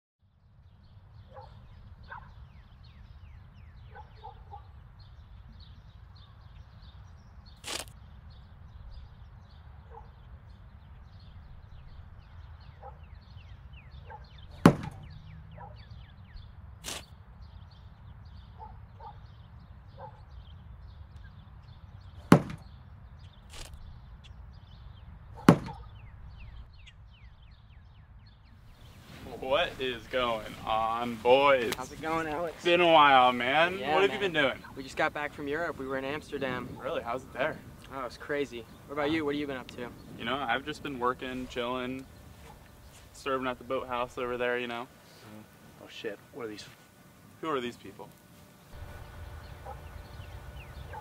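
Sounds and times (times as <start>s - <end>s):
low wind rumble: 0.2s - 51.0s
sharp cracks: 7.6s - 8.0s, 16.8s - 17.2s, 22.2s - 24.4s
high chirping: 48.7s - 51.0s.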